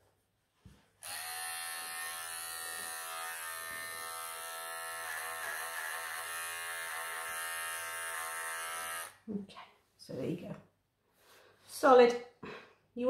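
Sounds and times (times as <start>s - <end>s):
electric clippers buzzing: 1.0s - 9.2s.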